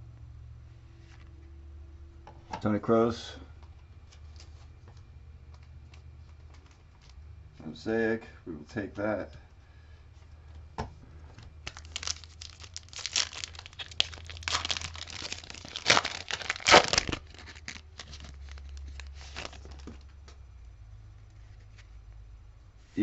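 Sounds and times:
foil wrapper tearing and crinkling: 11.6 - 20.0.

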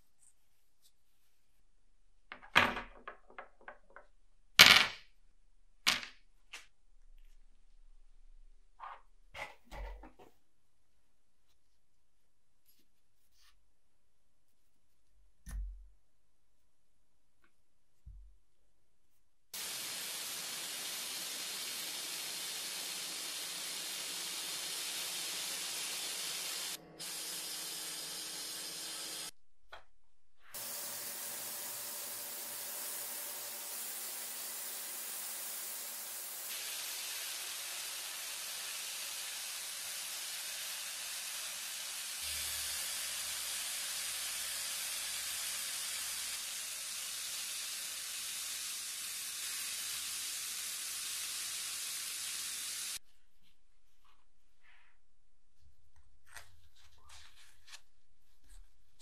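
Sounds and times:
sandblaster hissing: 19.6 - 29.3, 30.5 - 53.0.

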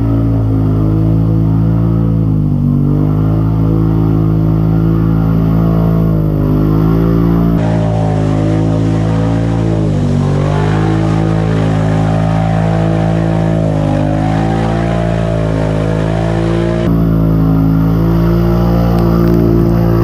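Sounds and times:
quad engine running under load: 0.0 - 20.0.

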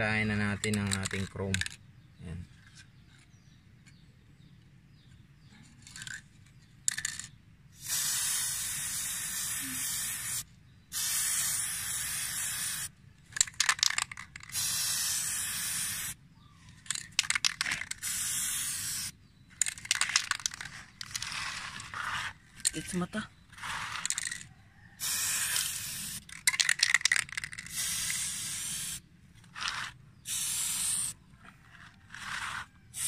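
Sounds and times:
aerosol spray paint hissing: 7.8 - 12.9, 14.5 - 16.2, 17.2 - 19.2, 25.0 - 29.0, 29.6 - 31.2, 32.2 - 33.0
spray can spitting spurts: 7.8 - 16.2, 16.9 - 22.3, 25.0 - 31.2, 32.1 - 33.0.

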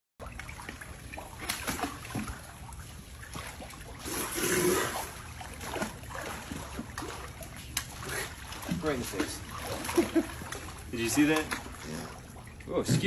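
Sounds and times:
water sloshing in pool: 0.2 - 13.0
alligator expelling air: 4.0 - 5.2.

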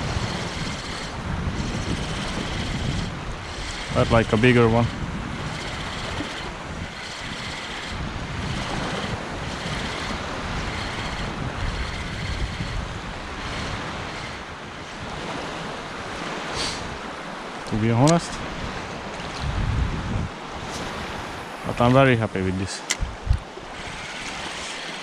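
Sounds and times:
wind rumbling on microphone: 0.0 - 25.0
small waves lapping: 20.4 - 25.0.

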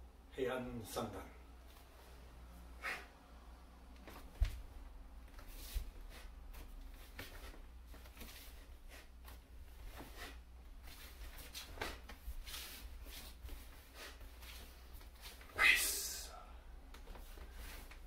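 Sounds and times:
low room hum: 0.0 - 18.0
clothing swishes and rustles: 4.0 - 15.6.

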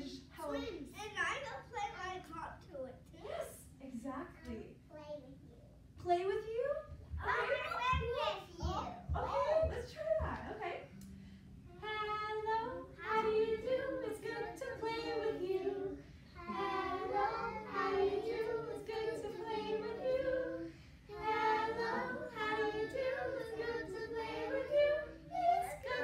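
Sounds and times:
children and woman singing: 11.7 - 26.0.

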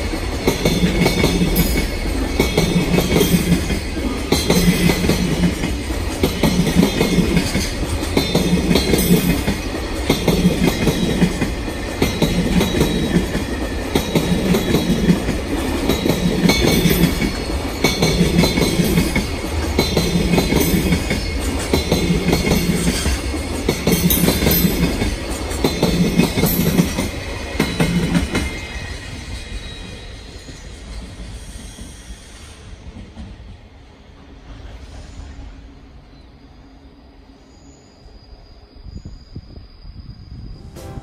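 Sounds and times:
train wheels clattering over rail joints: 0.0 - 28.6.

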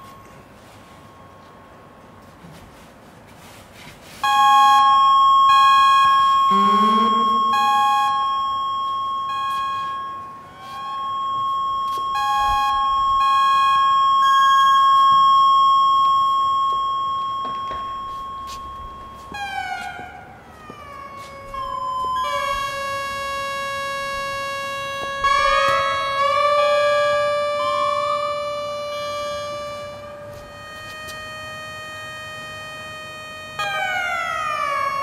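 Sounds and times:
short beeping tones: 4.2 - 19.6
steady high electronic tone: 4.2 - 35.0
sliding pitch glides: 6.5 - 8.2.

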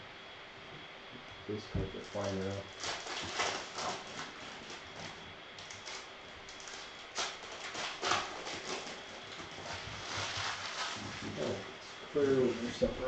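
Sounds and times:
foil wrappers crinkling: 1.9 - 11.6.

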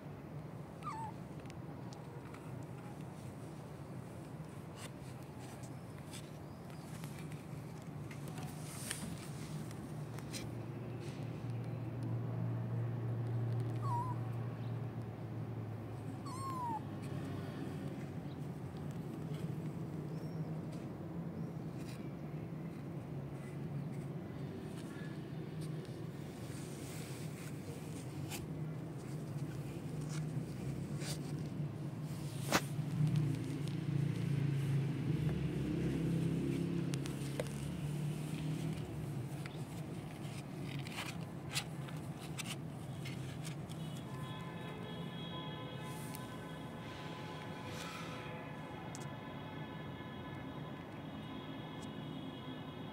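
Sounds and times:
kittens mewing: 0.8 - 1.3, 13.7 - 14.3, 16.1 - 16.9.

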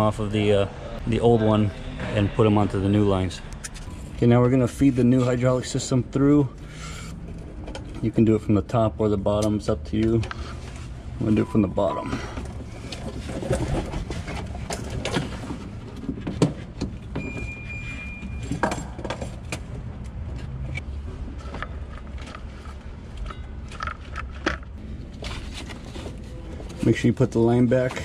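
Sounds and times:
clutch line rustling and knocking: 12.3 - 17.5, 18.2 - 28.0.

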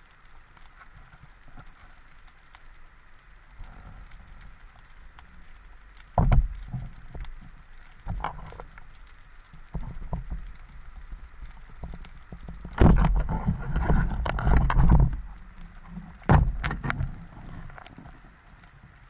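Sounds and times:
rush of water and bubbles: 0.0 - 19.0
underwater clicks: 3.6 - 18.7.

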